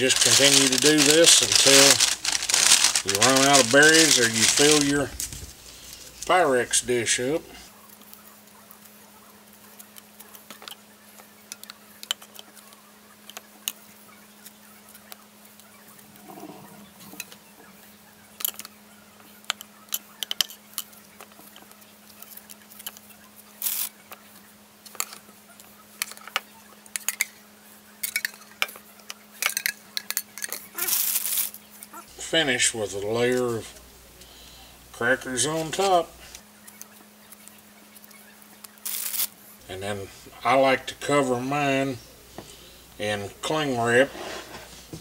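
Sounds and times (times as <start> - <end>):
crackers tapping and crinkling: 0.0 - 7.3, 9.8 - 13.8, 18.4 - 27.4, 28.0 - 32.3, 33.0 - 39.4
faint steady hum: 0.0 - 45.0.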